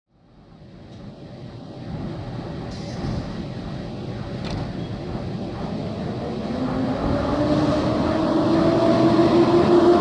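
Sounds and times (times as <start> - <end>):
electric locomotive rumble: 0.2 - 10.0
locomotive whine rising in pitch: 4.8 - 10.0.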